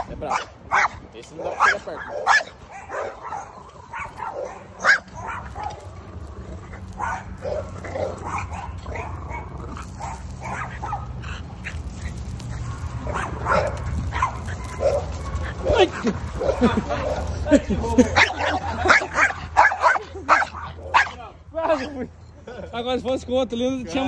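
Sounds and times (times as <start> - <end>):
dog barking: 0.0 - 5.9, 6.9 - 11.2, 12.5 - 17.3, 18.2 - 21.2.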